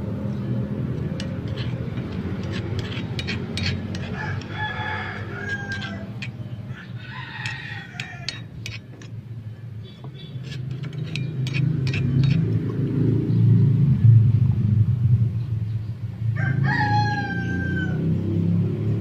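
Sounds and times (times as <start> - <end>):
steady low hum: 0.0 - 16.2
spoon stirring in metal pot: 0.9 - 12.8
rooster crowing: 4.0 - 8.6, 16.4 - 18.2.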